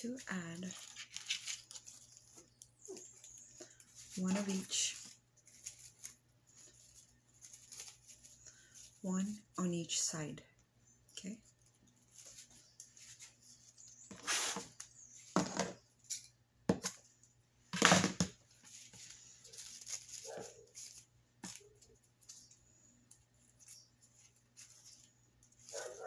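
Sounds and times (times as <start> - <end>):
dog barking: 20.2 - 20.7, 25.7 - 26.0.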